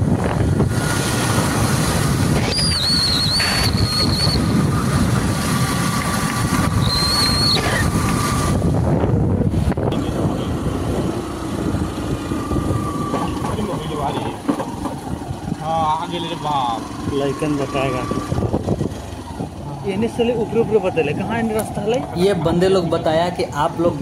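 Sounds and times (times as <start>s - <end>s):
wind buffeting microphone: 0.0s - 16.0s, 17.9s - 19.7s
motorcycle engine running: 0.0s - 24.0s
high thin whistling tones: 2.5s - 4.5s, 6.8s - 7.7s.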